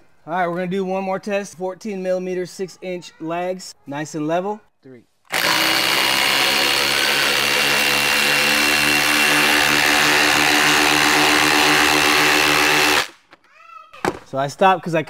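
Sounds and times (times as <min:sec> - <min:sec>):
impact drivers whining and rattling: 0:05.3 - 0:13.4.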